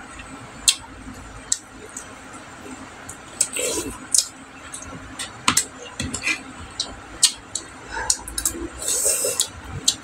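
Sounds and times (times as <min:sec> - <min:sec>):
chewing clicks and smacks: 0:03.0 - 0:06.2, 0:06.8 - 0:08.6.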